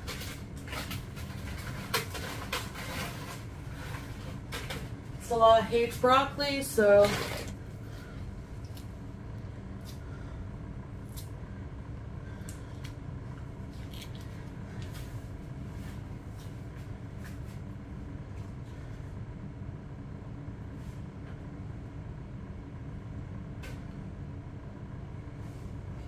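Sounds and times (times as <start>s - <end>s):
kitchen appliance humming: 0.0s - 16.9s.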